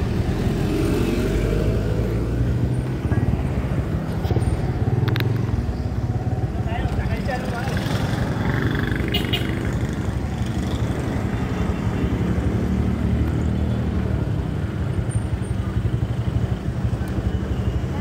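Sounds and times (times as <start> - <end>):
motorcycle engine running: 2.4 - 11.4.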